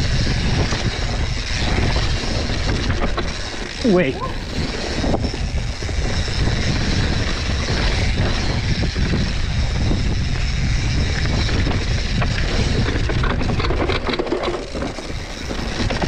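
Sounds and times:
bike clattering over bumps: 0:00.0 - 0:16.0
tyres on dirt and rock: 0:00.0 - 0:16.0
wind rumbling on microphone: 0:00.0 - 0:16.0.

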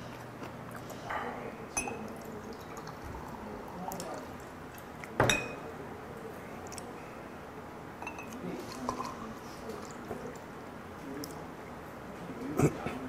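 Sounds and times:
glass clink: 0:01.8 - 0:02.1, 0:05.2 - 0:05.6, 0:08.0 - 0:08.4.

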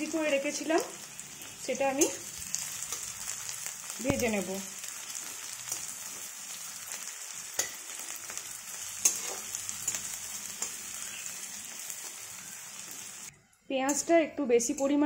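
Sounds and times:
onions sizzling in hot oil: 0:00.0 - 0:13.3
metal spatula scraping pan: 0:08.7 - 0:11.3.

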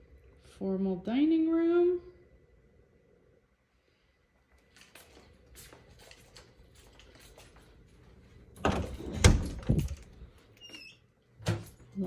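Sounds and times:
door squeak: 0:10.6 - 0:11.0.

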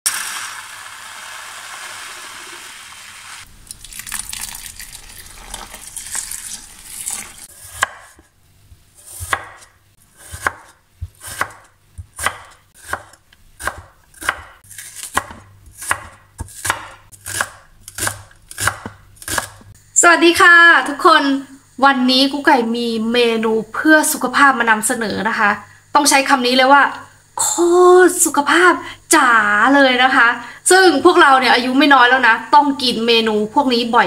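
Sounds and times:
grains poured into a bowl: 0:00.1 - 0:07.4
cleaver chopping on wooden board: 0:07.6 - 0:08.2, 0:09.1 - 0:19.7.

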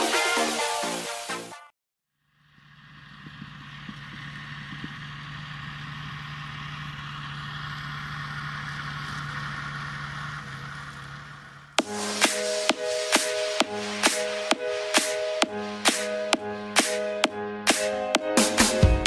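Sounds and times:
tractor diesel engine droning: 0:02.2 - 0:17.3.

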